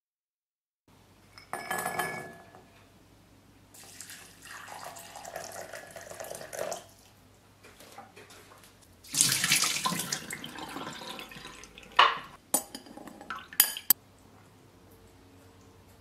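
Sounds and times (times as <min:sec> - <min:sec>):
glass clink: 0:01.3 - 0:02.6, 0:12.0 - 0:14.0
water pouring into glass bowl: 0:03.8 - 0:07.0, 0:09.1 - 0:12.2.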